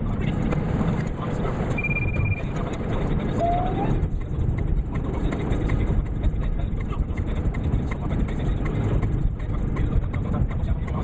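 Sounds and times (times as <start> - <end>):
tyres and engine rumble: 0.0 - 11.0.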